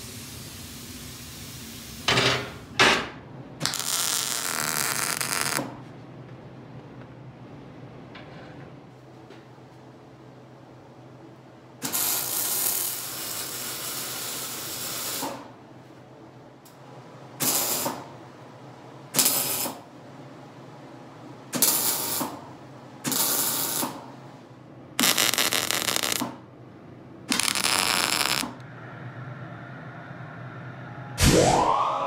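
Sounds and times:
welding arc crackling: 0:03.6 - 0:05.8, 0:11.8 - 0:15.2, 0:21.6 - 0:22.3, 0:23.1 - 0:23.9, 0:25.0 - 0:26.4, 0:27.3 - 0:28.6.

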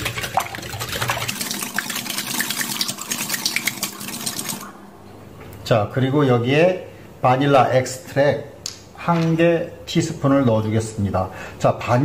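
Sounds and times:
liquid sloshing: 0:00.0 - 0:04.7.

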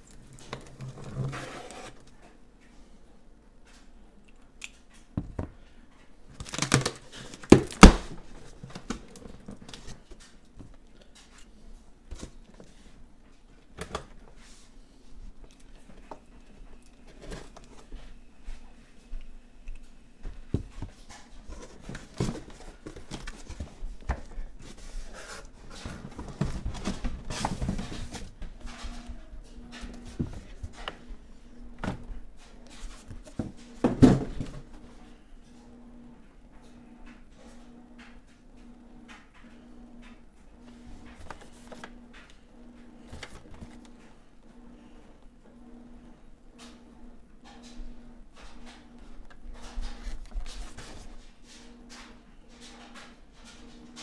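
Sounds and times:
cardboard box rustling: 0:21.4 - 0:28.4.

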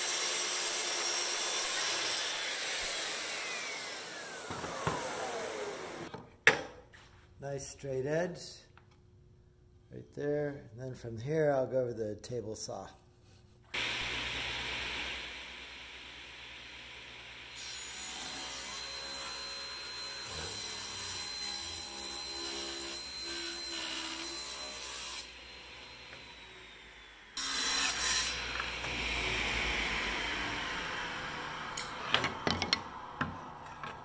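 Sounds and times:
table saw cutting wood: 0:00.0 - 0:06.1, 0:13.8 - 0:34.0.

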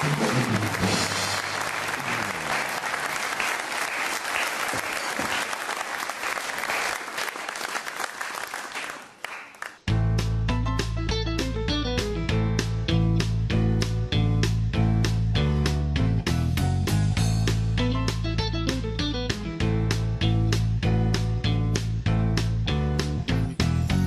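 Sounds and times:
music: 0:00.0 - 0:02.4, 0:09.8 - 0:24.0
audience applauding: 0:00.0 - 0:09.9.

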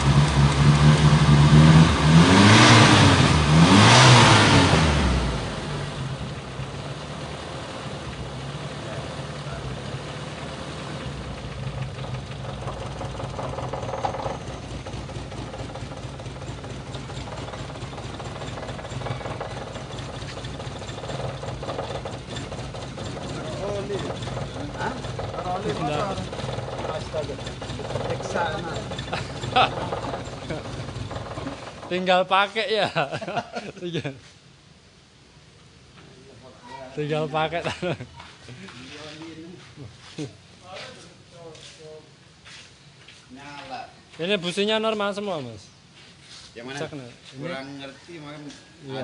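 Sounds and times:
car engine revving and idling: 0:00.0 - 0:32.0.

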